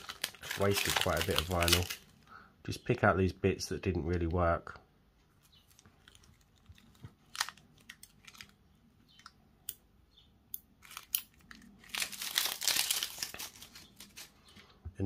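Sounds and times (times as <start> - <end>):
vinyl crinkling: 0.0 - 2.3, 5.2 - 9.3, 10.8 - 14.7.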